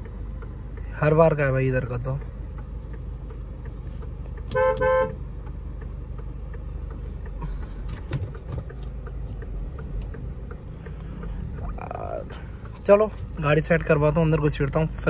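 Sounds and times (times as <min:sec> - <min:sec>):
diesel engine idling: 0:00.0 - 0:15.0
car horn toots: 0:04.4 - 0:05.2.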